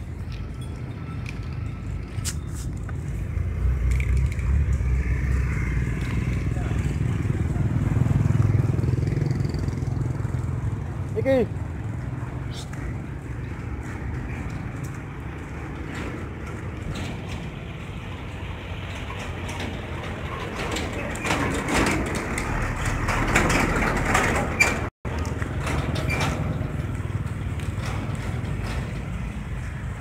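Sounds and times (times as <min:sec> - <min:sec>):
traffic engine rumble: 0:00.0 - 0:30.0
vehicle passing: 0:01.4 - 0:16.8.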